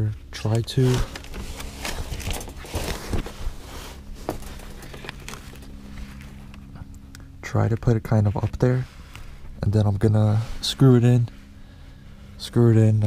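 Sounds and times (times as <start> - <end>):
steady low hum: 0.0 - 13.0
brake line scraping and clicking: 0.4 - 10.4.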